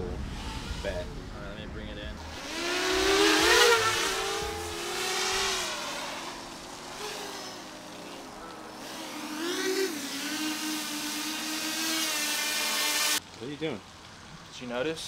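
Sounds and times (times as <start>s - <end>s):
drone propellers whining: 2.1s - 13.2s.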